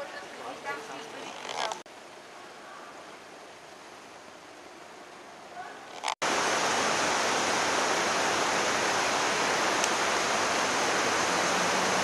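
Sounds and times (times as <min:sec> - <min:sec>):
river water rushing over stones: 0:06.2 - 0:12.0.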